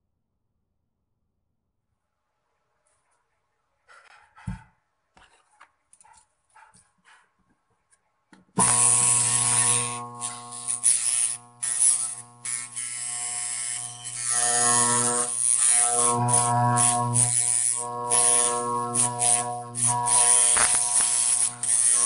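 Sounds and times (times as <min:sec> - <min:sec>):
steel blade buzzing: 0:08.6 - 0:22.0.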